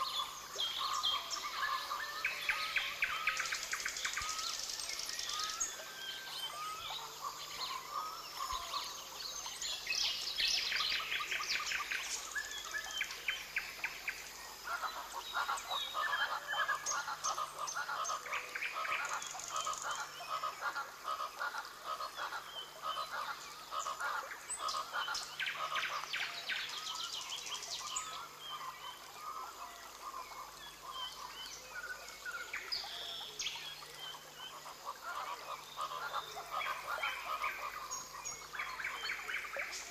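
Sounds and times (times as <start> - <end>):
frogs pulsing calls: 9.8 - 39.9.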